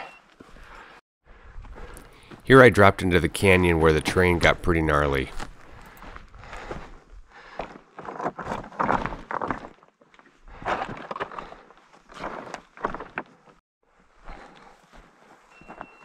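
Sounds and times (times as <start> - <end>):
footsteps crunching on scree: 1.6 - 16.0
stones clattering: 8.0 - 9.8.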